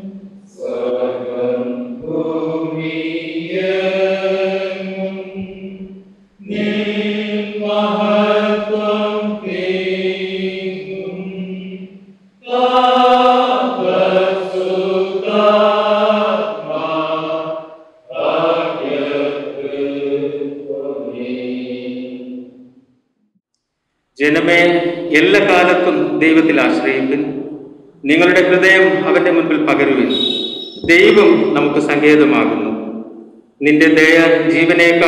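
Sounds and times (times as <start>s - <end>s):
voices singing a slow hymn: 0.0s - 22.8s, 29.9s - 33.4s.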